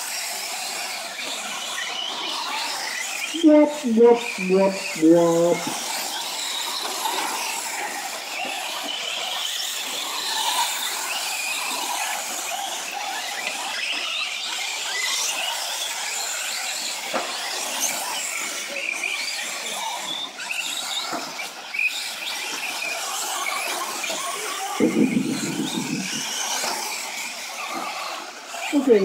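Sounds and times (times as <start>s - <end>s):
rc trucks motors whining: 0.0s - 29.0s.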